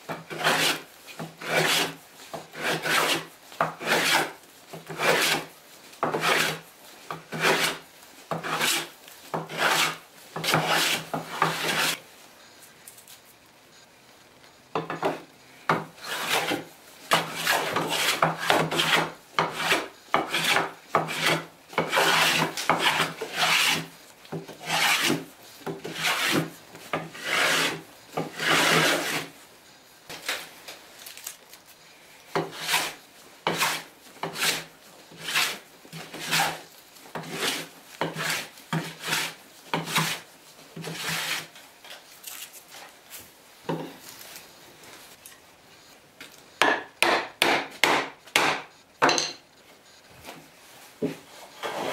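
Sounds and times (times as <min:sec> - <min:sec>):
hand plane shaving wood: 0:00.1 - 0:06.6, 0:07.2 - 0:12.0, 0:16.0 - 0:23.9, 0:24.5 - 0:29.3, 0:32.4 - 0:36.6, 0:37.2 - 0:40.2, 0:40.8 - 0:41.5, 0:51.3 - 0:51.9.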